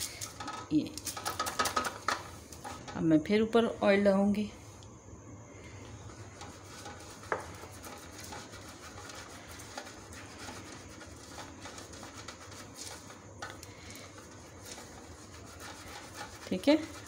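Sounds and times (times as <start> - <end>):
pastry brush brushing paper: 6.1 - 17.0.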